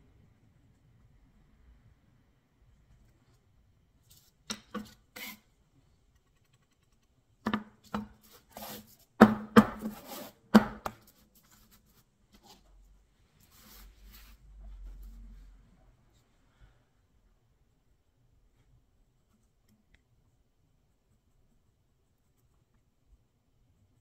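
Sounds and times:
board knocking on tabletop: 0:07.5 - 0:08.2, 0:09.2 - 0:11.0.

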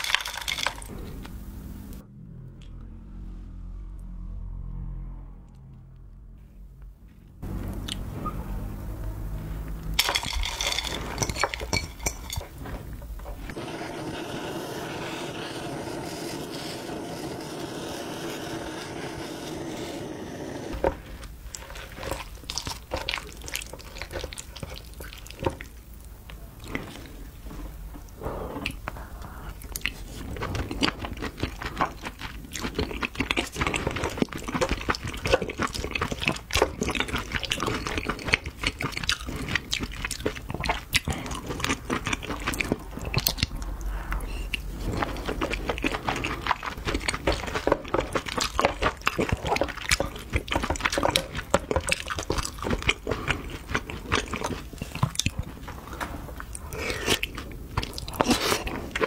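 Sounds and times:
spoon stirring sticky mixture: 0:44.5 - 0:59.0.

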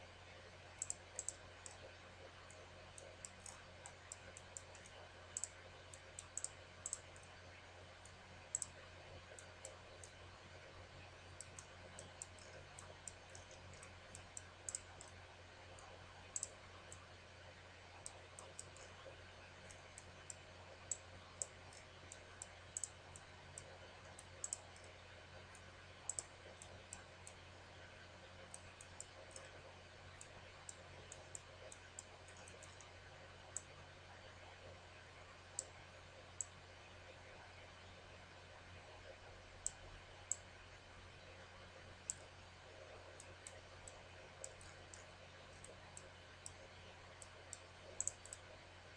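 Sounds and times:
faint low hum: 0:00.0 - 0:48.9
computer mouse clicking: 0:00.8 - 0:07.4, 0:08.0 - 0:10.2, 0:11.4 - 0:17.1, 0:17.9 - 0:33.7, 0:36.4 - 0:36.6, 0:39.6 - 0:40.5, 0:42.0 - 0:48.6.

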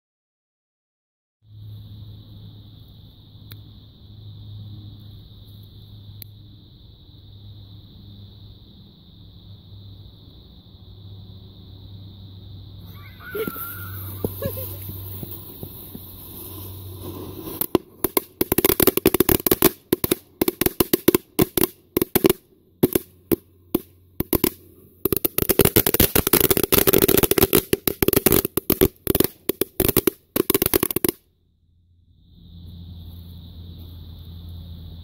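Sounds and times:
firecrackers popping: 0:12.9 - 0:31.3.

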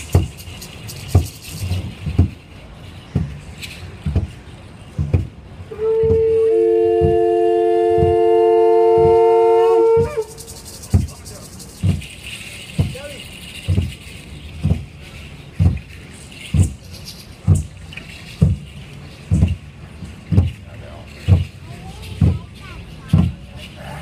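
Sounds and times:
conch-shell trumpets blast: 0:05.7 - 0:10.6.

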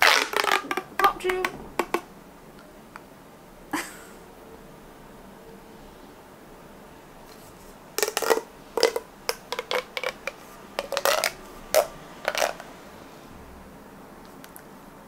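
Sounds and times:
plastic pop tube popping: 0:00.0 - 0:02.1, 0:08.0 - 0:12.6.

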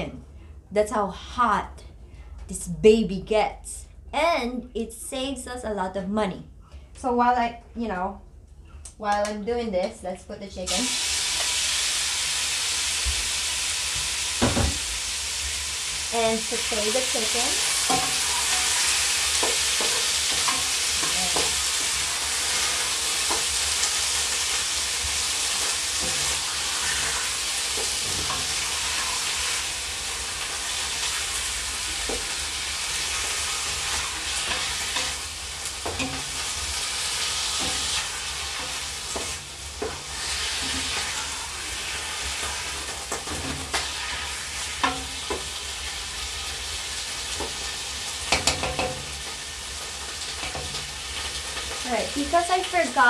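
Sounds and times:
chicken sizzling in hot oil: 0:10.7 - 0:53.0.

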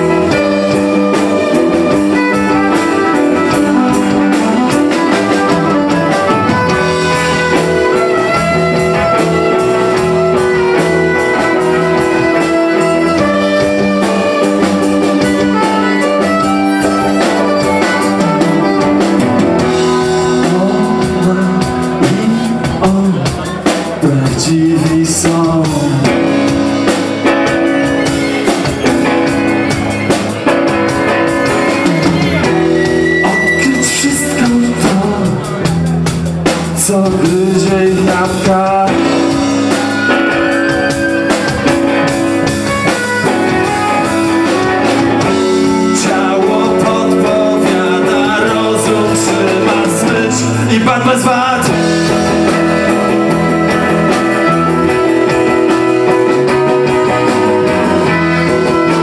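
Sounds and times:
violin: 0:00.0 - 0:20.4
man singing: 0:00.0 - 0:28.0, 0:30.4 - 0:42.2, 0:43.6 - 0:59.0
drums: 0:00.0 - 0:59.0
electric guitar: 0:00.0 - 0:59.0.

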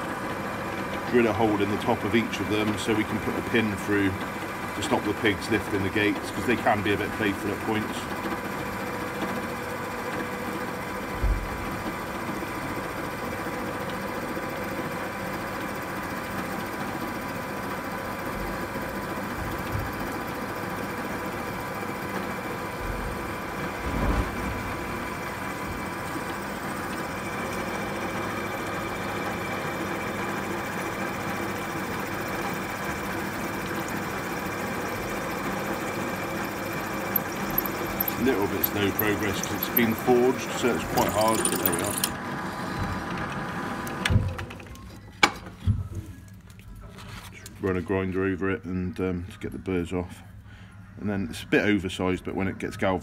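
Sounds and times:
pillar drill cutting steel: 0:35.6 - 0:42.2.

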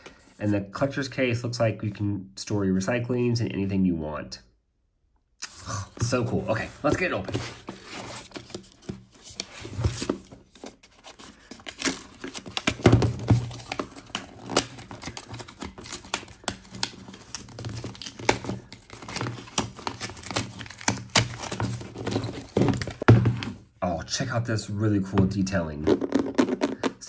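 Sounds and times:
paper packaging tearing: 0:10.8 - 0:22.6.

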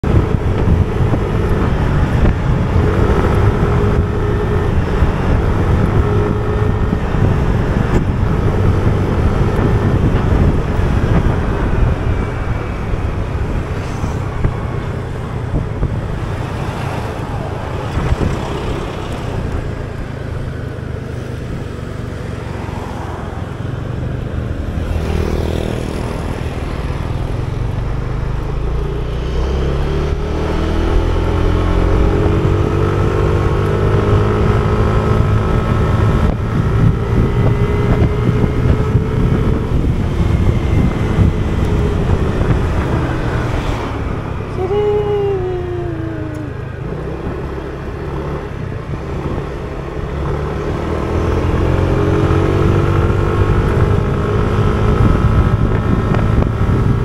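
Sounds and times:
wind rumble on microphone: 0:00.0 - 0:57.0.

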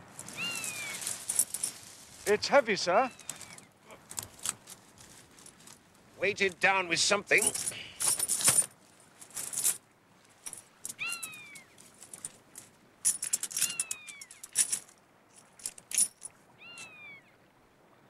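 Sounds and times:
coins clinking in coat: 0:00.1 - 0:02.4, 0:03.1 - 0:03.6, 0:07.3 - 0:09.8, 0:10.4 - 0:16.9.

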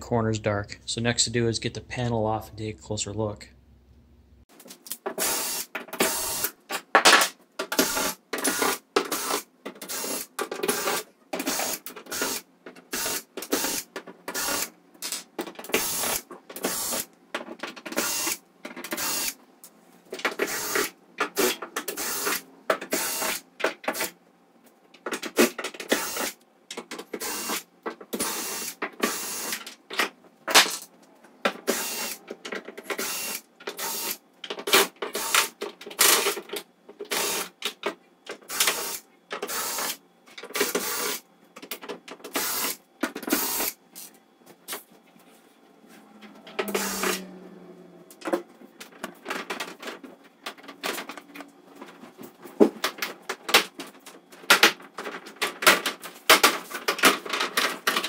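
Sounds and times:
cordless drill running in bursts: 0:05.2 - 0:06.5, 0:07.8 - 0:13.8, 0:14.4 - 0:14.7, 0:15.8 - 0:17.0, 0:26.0 - 0:26.3, 0:27.2 - 0:27.6, 0:31.7 - 0:32.2, 0:38.5 - 0:40.0, 0:40.7 - 0:41.2, 0:46.8 - 0:47.2.

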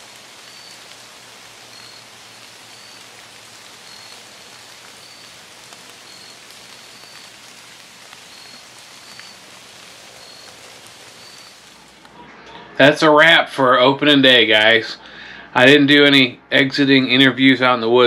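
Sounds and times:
rain falling on leaves: 0:00.0 - 0:12.1.

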